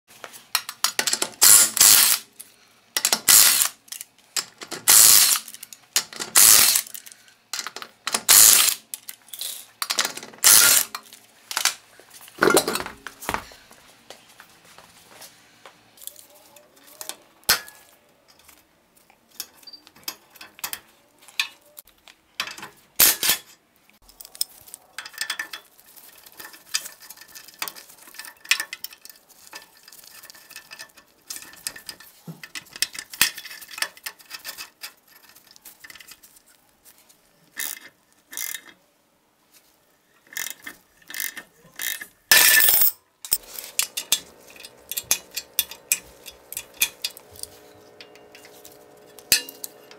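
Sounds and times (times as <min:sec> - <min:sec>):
hand tools clinking on metal: 0:41.3 - 0:49.9.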